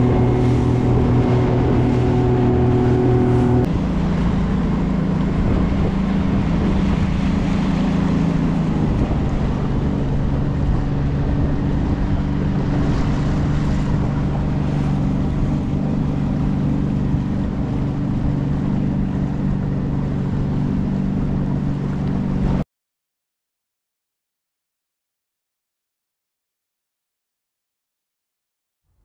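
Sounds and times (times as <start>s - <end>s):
motorboat engine running: 0.0s - 22.6s
water rushing along hull: 0.0s - 22.6s
wind on microphone: 0.0s - 22.6s.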